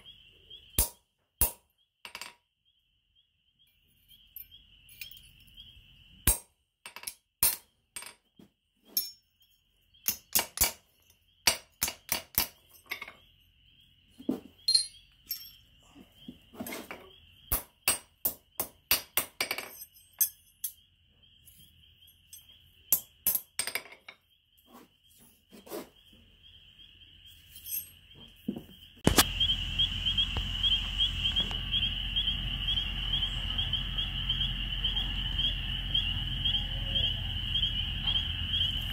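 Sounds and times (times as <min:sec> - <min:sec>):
hammer striking metal on anvil: 0:00.8 - 0:01.6, 0:06.2 - 0:06.5
insect trill: 0:02.6 - 0:06.5, 0:09.0 - 0:38.9.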